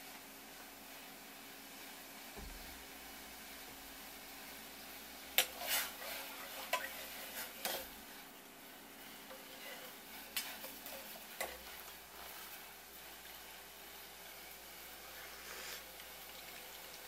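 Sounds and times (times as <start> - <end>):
ladle stirring sauce: 5.4 - 8.0, 9.2 - 13.4.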